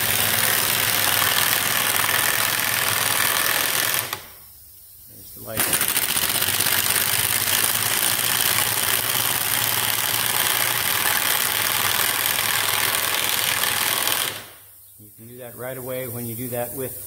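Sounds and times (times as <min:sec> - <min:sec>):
pneumatic drill whirring: 0:00.0 - 0:04.4, 0:05.6 - 0:14.6
airy hiss: 0:14.6 - 0:17.0.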